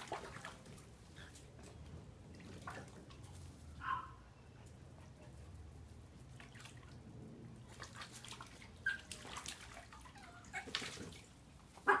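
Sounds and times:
dogs splashing in water: 0:00.0 - 0:03.8, 0:06.2 - 0:12.0.

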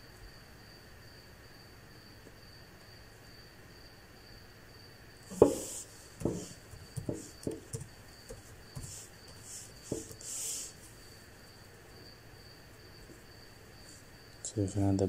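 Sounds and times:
soft hissy noises: 0:05.3 - 0:11.3.

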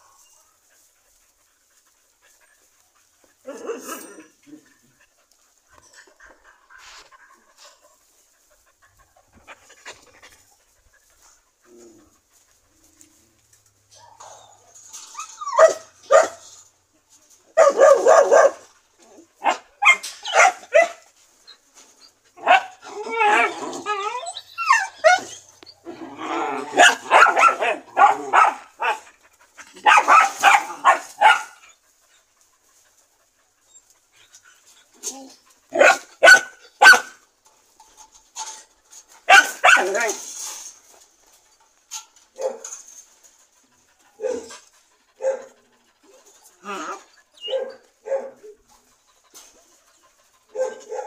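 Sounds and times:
dog whining and yipping: 0:14.0 - 0:16.3, 0:21.8 - 0:29.0, 0:45.2 - 0:48.7.

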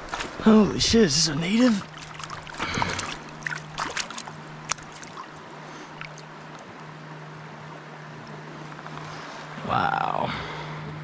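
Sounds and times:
river water running over rocks: 0:01.0 - 0:06.3
fish splashing in water: 0:01.7 - 0:06.3.

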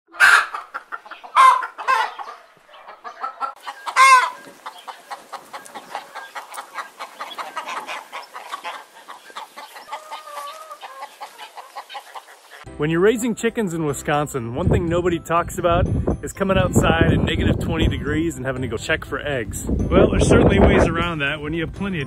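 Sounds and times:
chickens clucking: 0:00.1 - 0:12.7
chickens squawking: 0:00.1 - 0:12.7.

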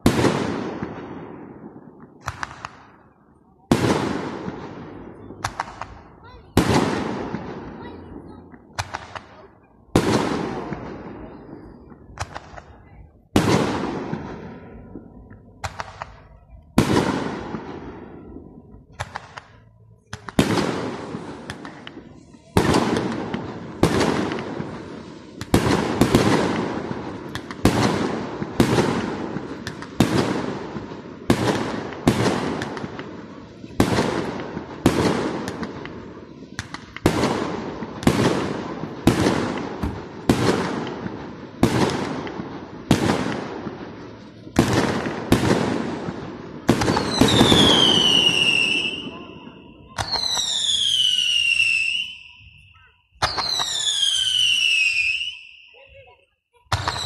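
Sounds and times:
firework shells bursting: 0:02.0 - 0:03.0
falling firework whistle: 0:50.0 - 0:55.8.

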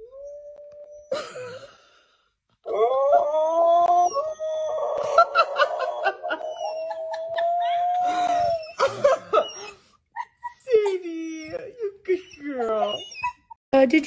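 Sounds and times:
dog howling: 0:02.7 - 0:09.8
person laughing: 0:05.0 - 0:11.2.

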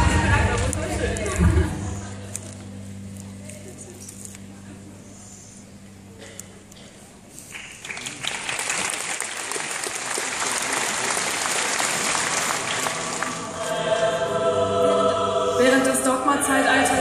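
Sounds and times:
audience applauding: 0:07.4 - 0:14.0
music with held sung notes: 0:12.8 - 0:17.0.

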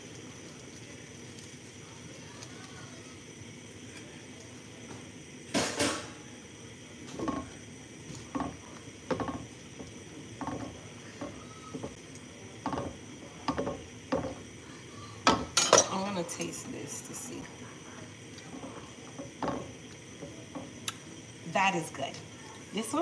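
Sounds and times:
spoon knocking in metal pan: 0:08.3 - 0:12.0, 0:12.6 - 0:14.4
cookware clatter: 0:15.2 - 0:16.6.

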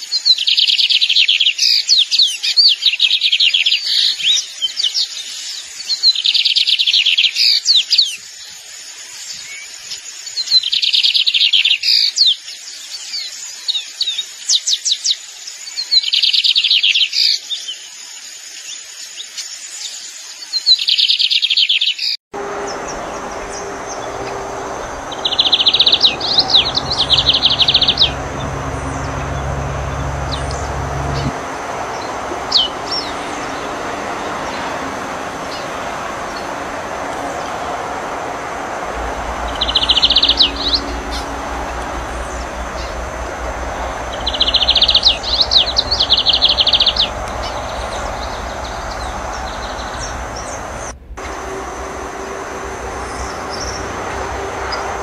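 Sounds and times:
bird buzzy high trills: 0:22.4 - 0:55.0.

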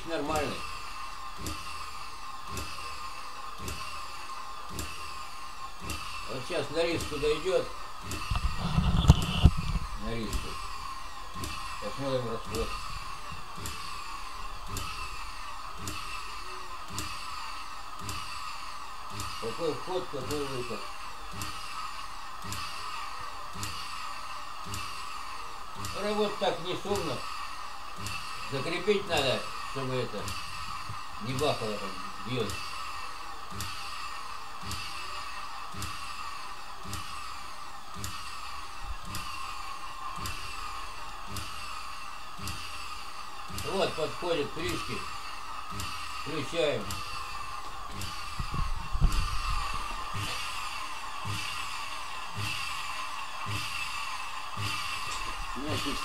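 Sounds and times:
vacuum cleaner motor whining: 0:00.0 - 0:56.0.

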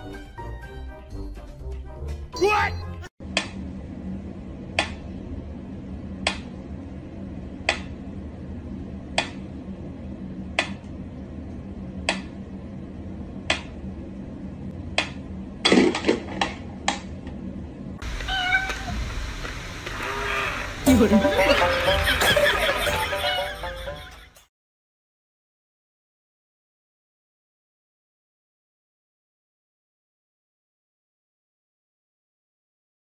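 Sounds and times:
cat meowing: 0:18.1 - 0:19.0, 0:20.0 - 0:20.7.

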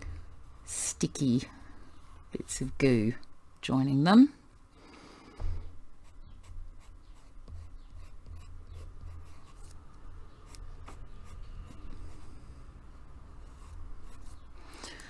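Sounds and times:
pencil scratching on paper: 0:06.0 - 0:09.8, 0:10.4 - 0:12.7, 0:13.4 - 0:14.5.

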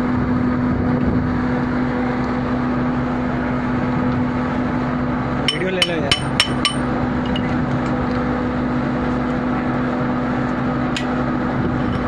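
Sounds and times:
machinery drone: 0:00.0 - 0:12.0
wrench clinking on metal: 0:05.5 - 0:07.4.

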